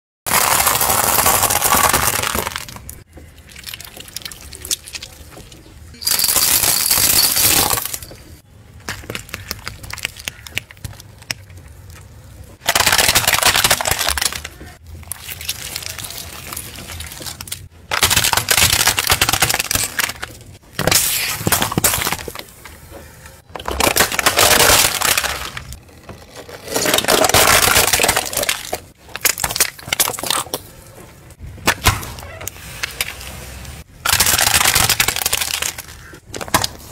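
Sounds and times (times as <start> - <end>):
plastic bottles squashed: 0.3 - 5.2, 12.6 - 22.6, 23.5 - 30.7, 34.0 - 36.9
dry pasta snapping: 9.3 - 12.1
tyre crushing objects: 12.6 - 30.7.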